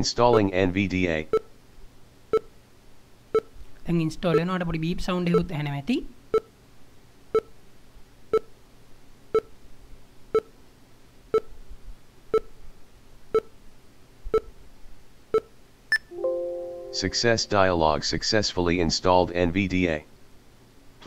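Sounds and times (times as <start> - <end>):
short beeps: 15.4 - 17.2.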